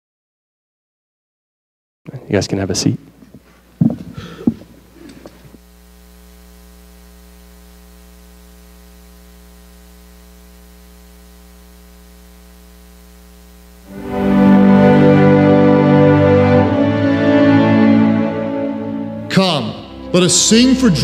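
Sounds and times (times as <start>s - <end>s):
steady hum with overtones: 2.3s - 21.0s
instrumental music: 13.9s - 21.0s.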